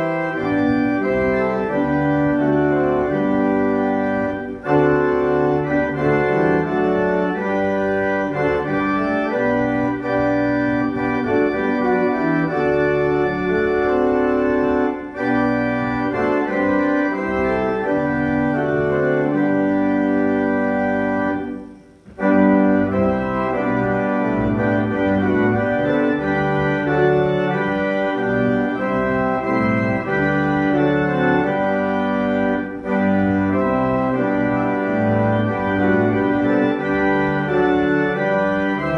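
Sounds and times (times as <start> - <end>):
church organ playing hymn chords: 0.0 - 38.9.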